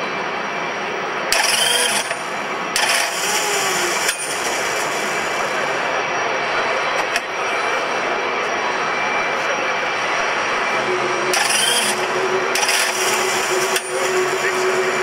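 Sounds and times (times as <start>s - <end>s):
engine noise: 0.0s - 15.0s
starter spinning engine: 1.3s - 5.7s, 11.3s - 15.0s.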